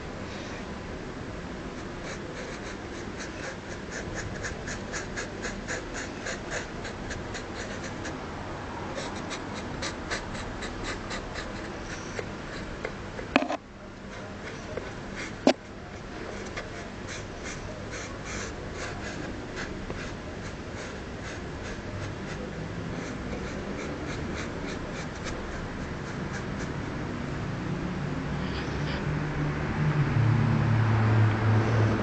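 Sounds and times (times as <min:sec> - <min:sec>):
marker scribbling on plastic: 0:01.8 - 0:08.2, 0:09.0 - 0:26.9.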